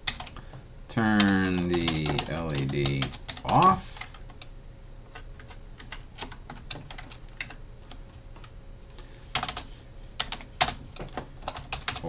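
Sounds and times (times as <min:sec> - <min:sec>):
computer keyboard typing: 0:00.1 - 0:00.4, 0:01.2 - 0:04.5, 0:05.1 - 0:08.0, 0:09.3 - 0:09.6, 0:10.2 - 0:12.0.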